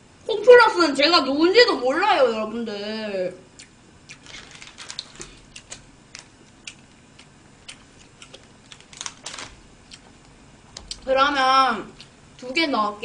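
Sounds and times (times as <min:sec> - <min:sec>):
plastic wrapper crinkling: 0:04.2 - 0:06.3, 0:08.3 - 0:09.6.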